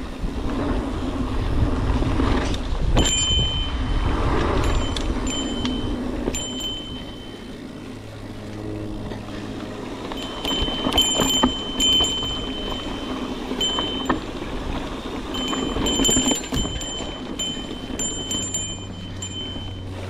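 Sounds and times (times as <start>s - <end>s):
bike knocking and rattling: 0.0s - 20.0s
bicycle bell ringing: 3.0s - 8.0s, 9.8s - 20.0s.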